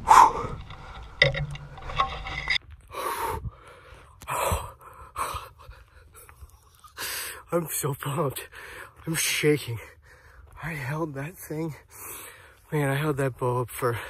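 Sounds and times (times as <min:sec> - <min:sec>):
man gasping and breathing hard: 0:00.0 - 0:00.8, 0:02.9 - 0:06.4.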